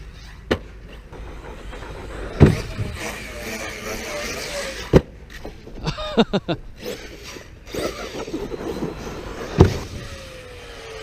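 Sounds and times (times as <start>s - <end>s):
electric motor whining: 1.2s - 5.0s, 6.8s - 11.0s
toy truck landing thump: 1.2s - 5.8s, 8.2s - 10.2s.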